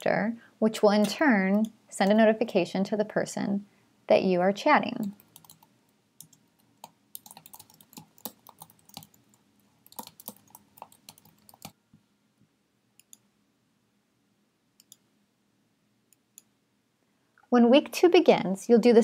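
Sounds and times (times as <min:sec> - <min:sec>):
computer keyboard typing: 0:05.0 - 0:11.8.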